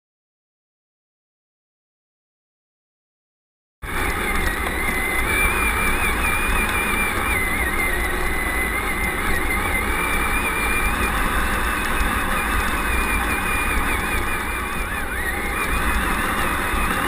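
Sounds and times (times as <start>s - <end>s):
drivetrain and tyre rumble: 3.8s - 17.0s
electric motor whine: 3.8s - 17.0s.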